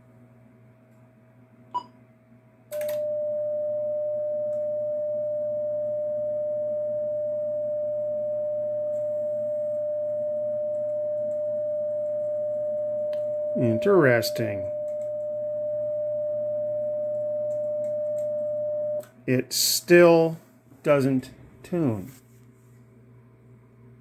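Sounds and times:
steady single-pitched tone: 3.0s - 19.0s.

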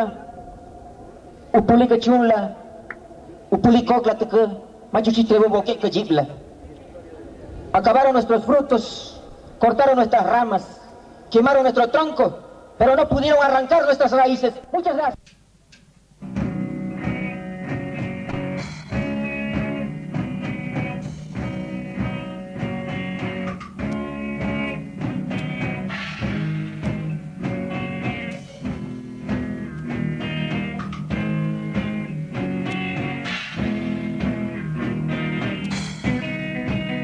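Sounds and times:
drums: 15.1s - 37.0s
punk rock guitar: 16.2s - 37.0s.

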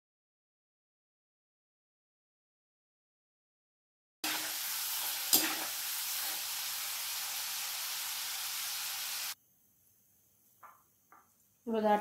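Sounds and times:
food deep-frying in hot oil: 4.2s - 9.4s.

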